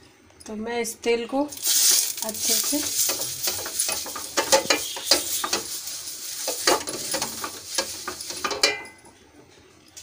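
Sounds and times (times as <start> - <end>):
cloth rubbing on hot pan: 1.6 - 8.7.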